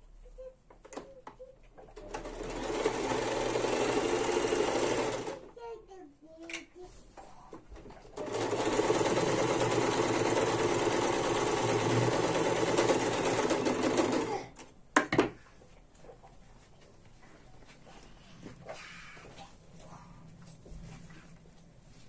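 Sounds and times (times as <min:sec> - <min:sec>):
sewing machine stitching: 0:01.8 - 0:05.5, 0:07.8 - 0:14.4.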